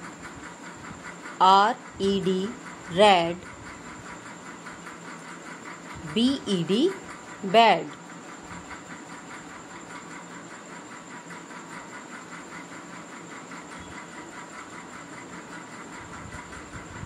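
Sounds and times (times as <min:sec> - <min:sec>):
faint fast pulsing: 0:00.0 - 0:17.0
thin high whine: 0:01.4 - 0:03.5, 0:06.0 - 0:08.0.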